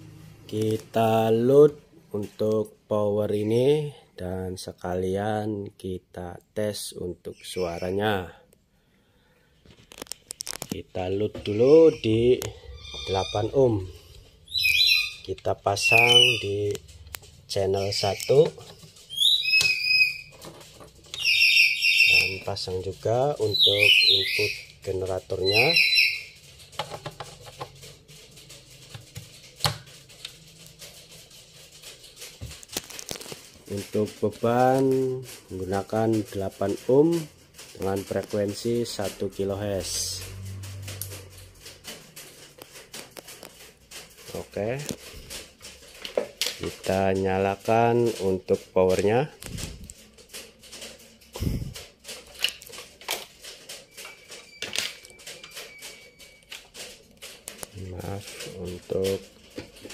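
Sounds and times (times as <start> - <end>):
cables and connectors clicking: 9.6 - 14.3, 15.2 - 25.8, 32.0 - 59.9.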